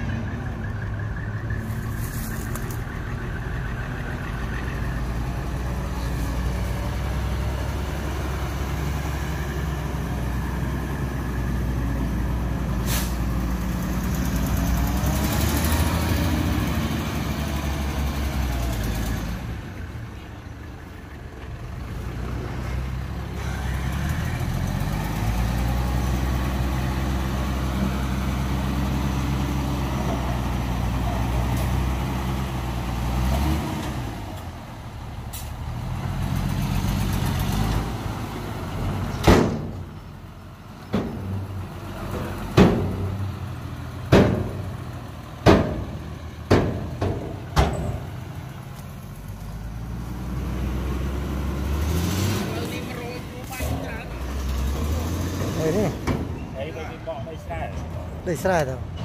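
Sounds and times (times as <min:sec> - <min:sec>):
diesel truck engine under load: 0:00.0 - 0:59.0.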